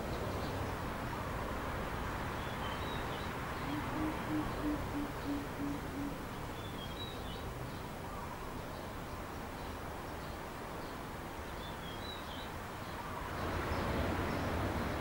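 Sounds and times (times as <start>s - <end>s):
deep hooting bird calls: 3.6s - 6.2s.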